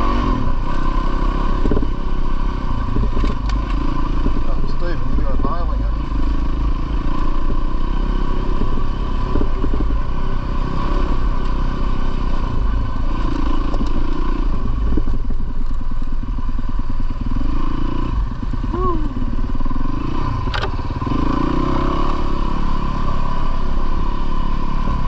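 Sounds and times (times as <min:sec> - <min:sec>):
dirt bike engine revving: 0:00.0 - 0:12.2, 0:17.2 - 0:25.0.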